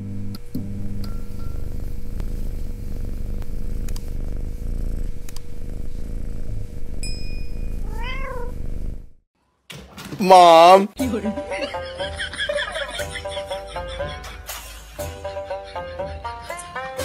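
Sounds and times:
cat purring: 0.0 - 9.2
sharp clicks: 3.4 - 4.1
cat meowing: 7.8 - 8.6.

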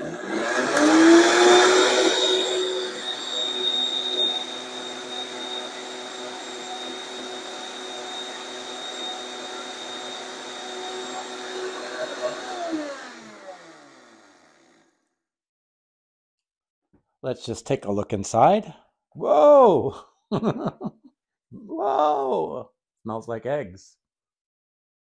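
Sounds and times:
blender blades spinning down: 0.0 - 14.9
blender grinding eggshells: 0.0 - 14.9.

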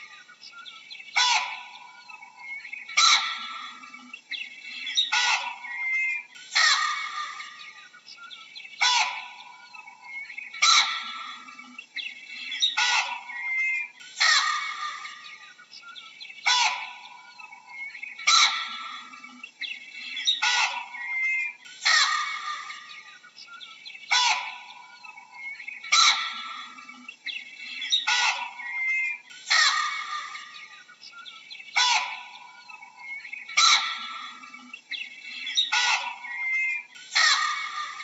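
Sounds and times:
baboon harsh calls: 1.2 - 2.0, 3.0 - 3.9, 5.0 - 7.8, 8.8 - 9.6, 10.6 - 11.7, 12.6 - 15.4, 16.4 - 17.3, 18.2 - 19.2, 20.2 - 23.1, 24.1 - 26.9, 27.8 - 30.8, 31.8 - 34.6, 35.5 - 38.0.

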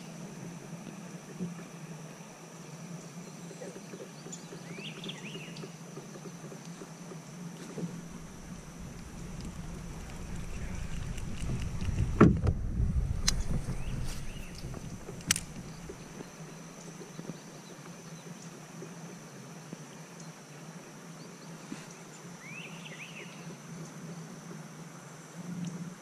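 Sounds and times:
low rumble: 7.9 - 16.3
sharp click: 8.4 - 16.2
bird chirps: 13.0 - 16.3.

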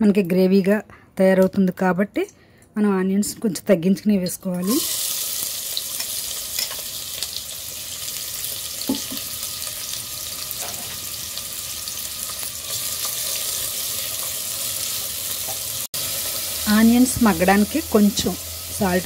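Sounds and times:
onions sizzling in hot oil: 4.6 - 19.0.

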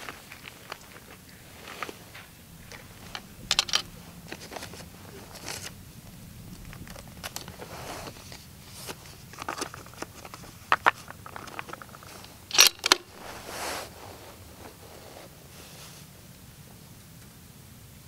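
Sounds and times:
rifle bolt clicks and clacks: 2.7 - 4.0, 12.5 - 13.1.

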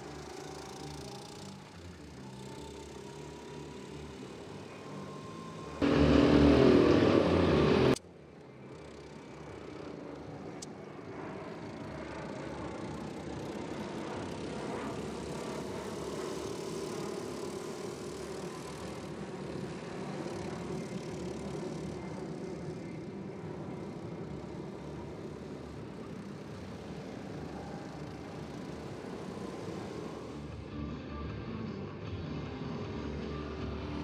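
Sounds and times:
go-kart engine drone: 0.0 - 34.0.

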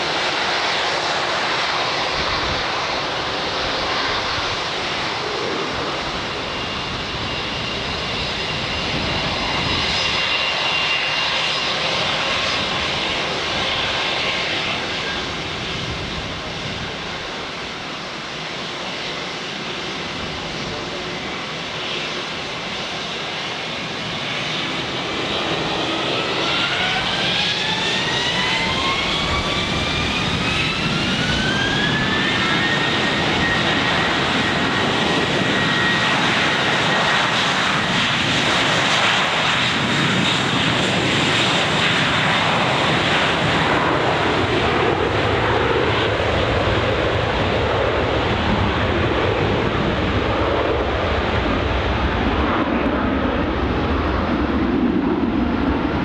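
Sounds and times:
jet engine rush: 0.0 - 56.0
jet engine whine: 0.0 - 56.0.

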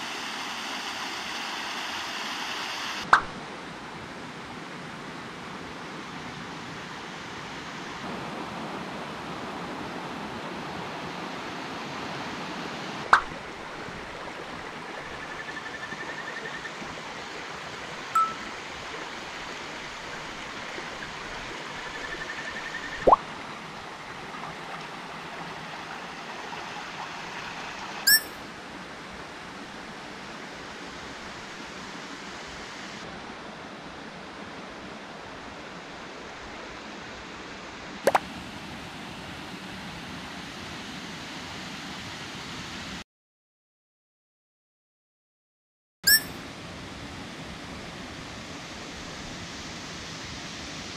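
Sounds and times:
creek flowing over rocks: 8.0 - 15.4, 16.7 - 32.1.

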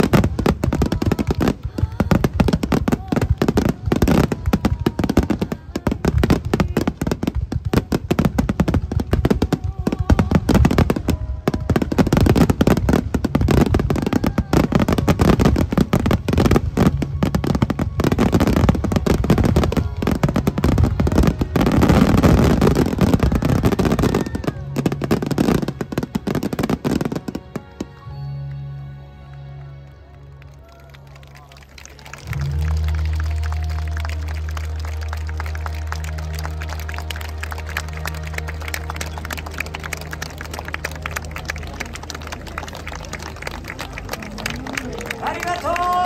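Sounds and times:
fireworks bangs and crackles: 0.0 - 28.0.

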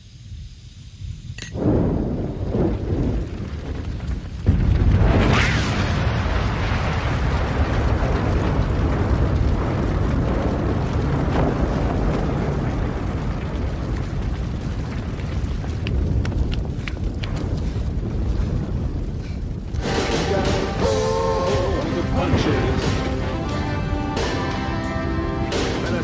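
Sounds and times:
fire burning: 0.0 - 26.0
car explosion blast: 1.6 - 16.8.

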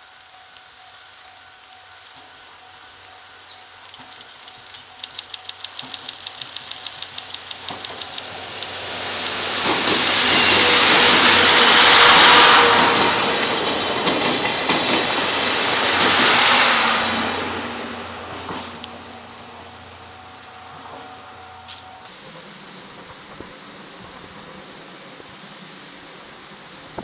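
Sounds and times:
passing train rumble: 0.2 - 27.0
wheels clicking over track: 3.8 - 11.3.

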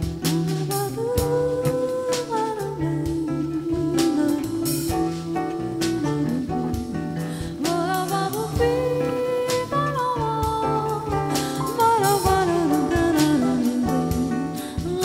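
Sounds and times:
acoustic guitar: 0.0 - 15.0
bass line: 0.0 - 15.0
sliding melody line: 7.6 - 15.0.

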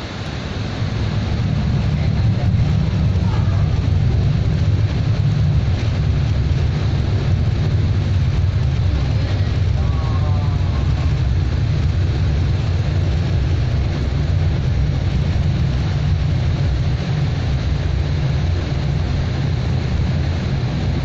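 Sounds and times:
airliner engines from cabin: 0.0 - 21.0.

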